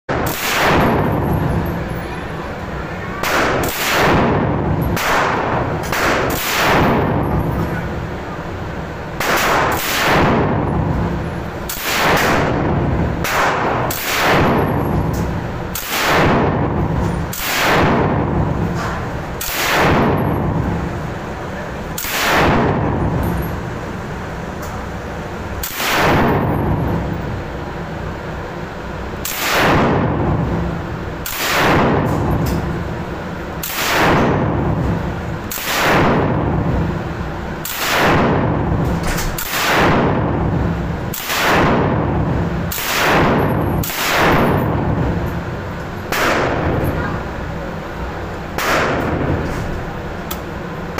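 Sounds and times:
machine gun single shots echoing: 0.1s - 1.8s, 3.2s - 7.9s, 9.2s - 20.9s, 22.0s - 23.6s, 25.6s - 27.1s, 29.2s - 32.4s, 33.6s - 34.8s, 35.5s - 36.7s, 37.6s - 45.2s, 46.1s - 47.2s, 48.6s - 49.4s.

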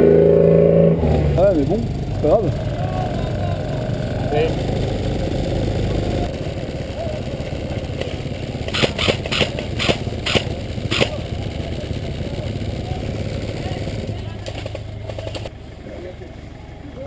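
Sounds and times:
buggy engine running: 0.0s - 17.0s
sharp cracks: 7.5s - 11.8s, 13.4s - 15.5s.

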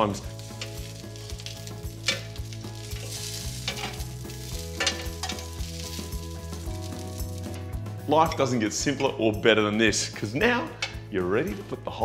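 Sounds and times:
sausages sizzling on griddle pan: 0.0s - 7.8s
metal tongs scraping pan: 0.4s - 6.1s.

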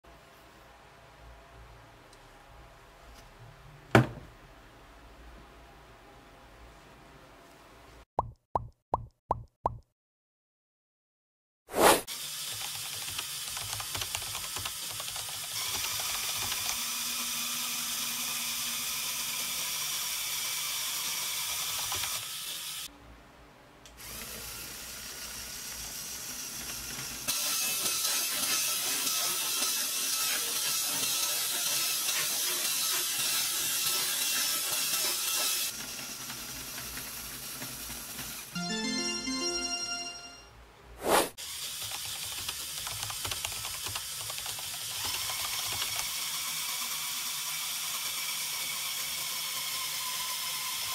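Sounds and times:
toy electric motor whirring: 12.1s - 22.9s, 24.0s - 38.5s, 41.4s - 50.9s.

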